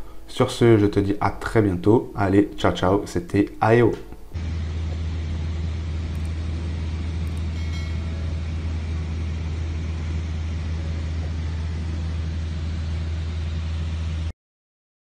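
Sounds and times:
propeller aircraft engine drone: 4.0 - 14.3.

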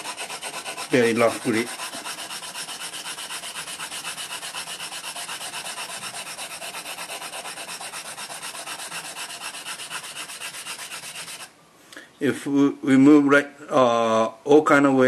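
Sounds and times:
wooden block scrubbing knife blade: 0.0 - 11.5.

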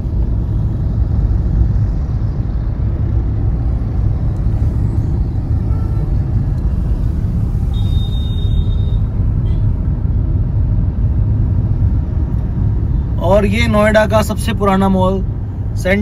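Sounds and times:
car rumbling in slow traffic: 0.0 - 16.0
short high-pitched beep: 7.7 - 9.1.

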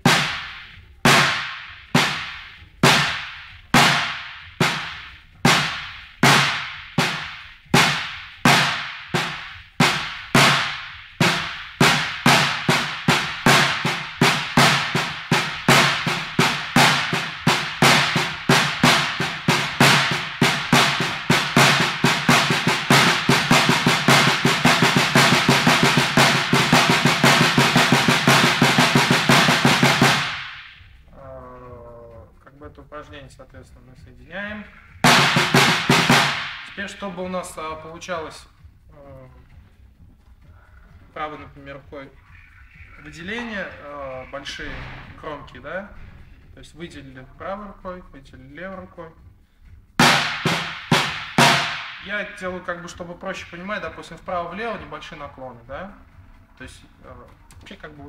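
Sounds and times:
snare drum strokes: 0.0 - 31.0, 34.5 - 38.1, 50.0 - 55.3.

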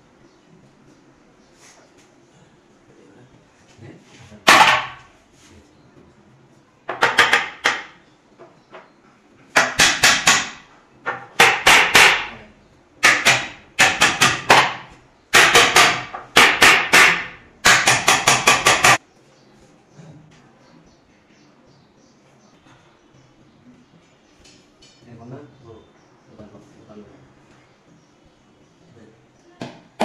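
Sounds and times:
hammer nailing plywood: 4.5 - 5.1, 6.9 - 8.0, 9.5 - 12.4, 13.0 - 19.0.

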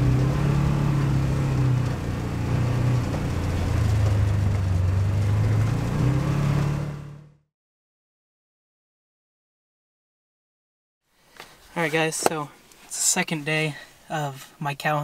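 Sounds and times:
utility vehicle engine running: 0.0 - 7.4.

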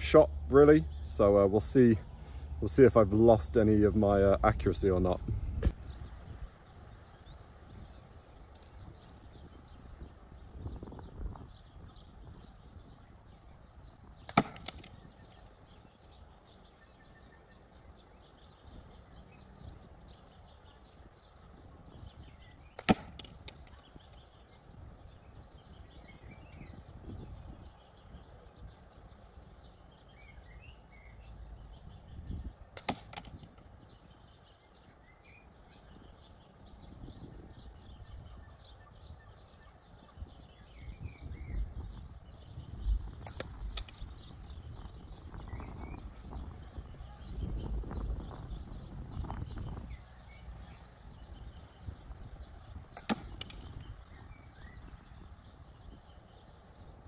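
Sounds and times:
steel balls hitting target box: 14.3 - 15.0.

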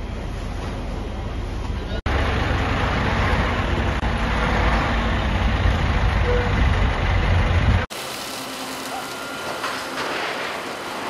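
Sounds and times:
diesel engine running: 0.1 - 7.9.

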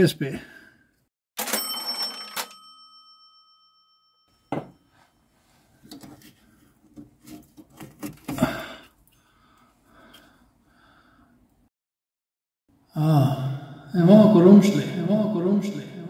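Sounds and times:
cash register sound effect: 1.4 - 3.6.

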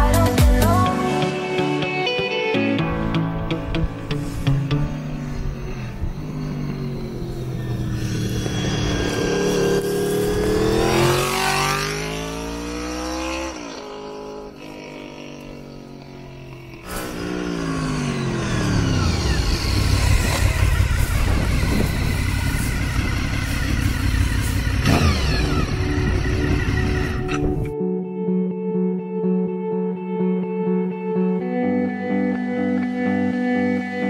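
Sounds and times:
motorcycle engine revving: 4.1 - 27.8.

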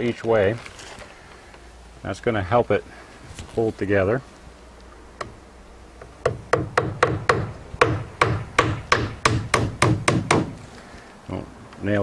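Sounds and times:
hammer driving nail into wood: 6.0 - 10.6.

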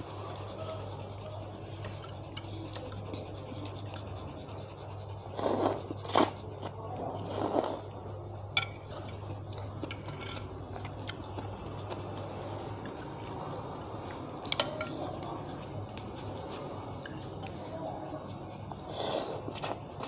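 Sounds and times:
steady low hum: 0.0 - 20.0
slurping and chewing noodles: 0.9 - 8.1, 8.7 - 20.0
chopsticks clicking against bowl: 12.8 - 16.1.

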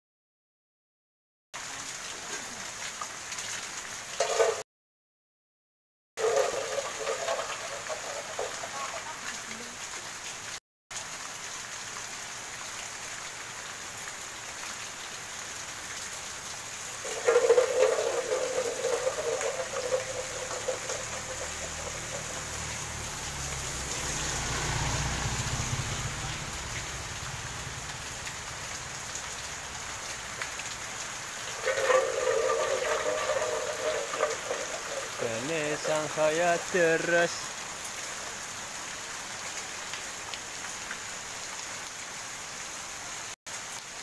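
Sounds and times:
rain on roofs: 1.6 - 4.6, 6.2 - 44.0
sustained pitched tone: 17.0 - 24.5.

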